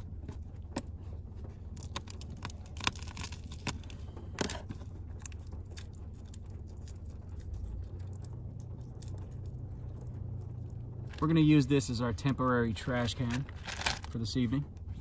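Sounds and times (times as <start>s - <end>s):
steady low hum: 0.0s - 15.0s
garlic skin crackling and tearing: 1.8s - 4.0s.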